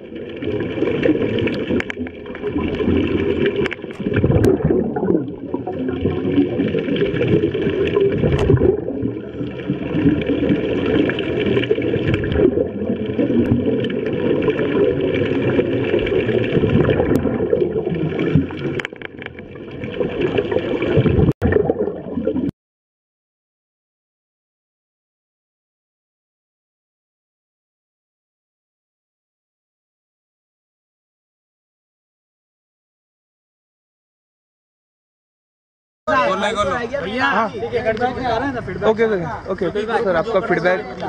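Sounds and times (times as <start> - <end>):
regulator bubbles gurgling: 0.0 - 22.5
underwater rumble: 0.0 - 22.5.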